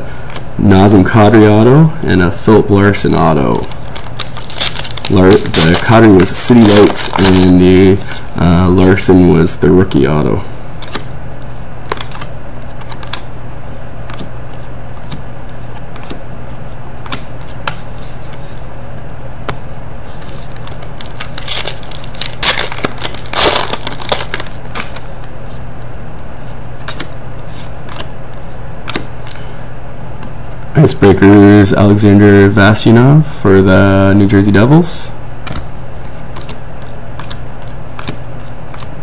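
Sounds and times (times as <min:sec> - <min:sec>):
foil wrapper crinkling: 0:03.4 - 0:09.1, 0:20.2 - 0:25.0
trading cards clicking and snapping: 0:03.6 - 0:07.9, 0:11.9 - 0:13.3, 0:20.5 - 0:25.0, 0:27.9 - 0:28.1, 0:28.8 - 0:29.4, 0:36.4 - 0:38.9.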